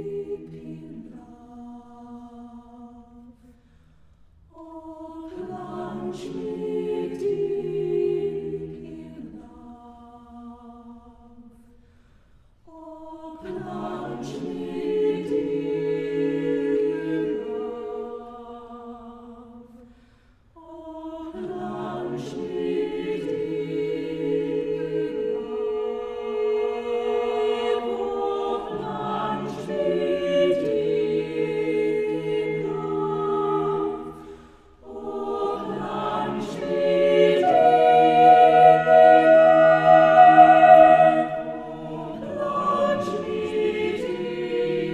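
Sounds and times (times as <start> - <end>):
choir singing unaccompanied: 0.0 - 3.4, 4.5 - 11.6, 12.6 - 19.9, 20.6 - 44.9.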